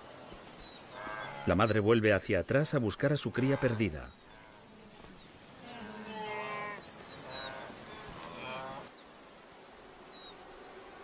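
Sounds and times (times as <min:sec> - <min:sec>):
high insect whine: 0:00.0 - 0:11.0
wildebeest bleating calls: 0:03.2 - 0:05.0, 0:05.6 - 0:08.9.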